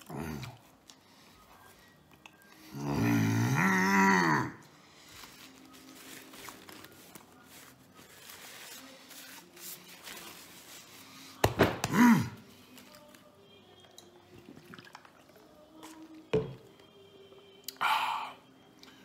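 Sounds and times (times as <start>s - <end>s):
man chewing food: 0.0s - 2.7s
faint background music: 0.0s - 19.0s.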